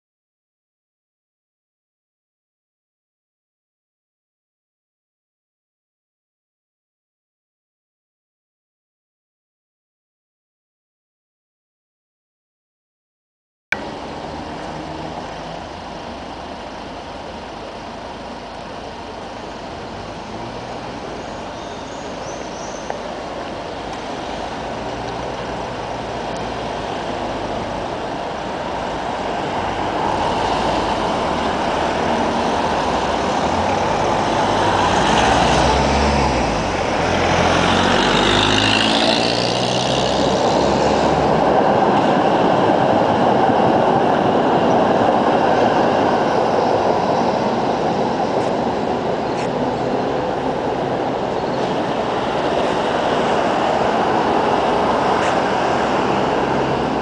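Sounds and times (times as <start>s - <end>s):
street noise: 13.7s - 57.0s
tram pulling away: 13.8s - 57.0s.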